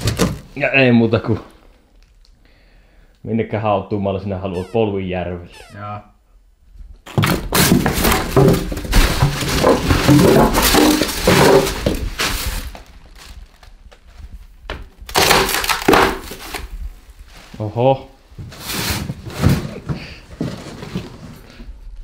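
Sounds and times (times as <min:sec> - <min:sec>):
polystyrene crunching and squeaking: 0:07.0 - 0:17.8.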